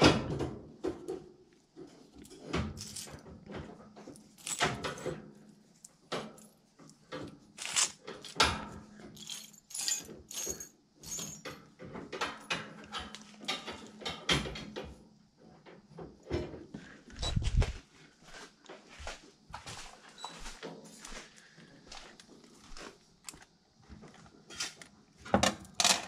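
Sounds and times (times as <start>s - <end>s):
metal screws and nails rattling: 7.6s - 11.7s.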